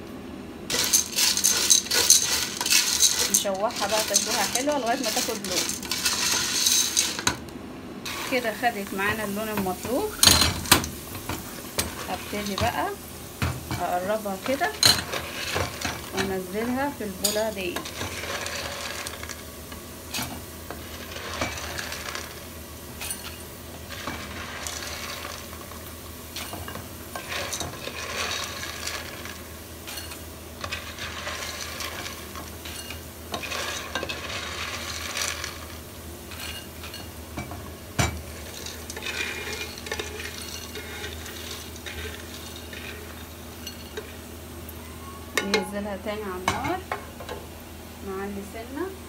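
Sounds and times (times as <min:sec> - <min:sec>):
spoon scraping pasta in pot: 0:00.7 - 0:07.3, 0:26.4 - 0:37.2, 0:38.2 - 0:44.2
hot oil sizzling: 0:00.7 - 0:48.6.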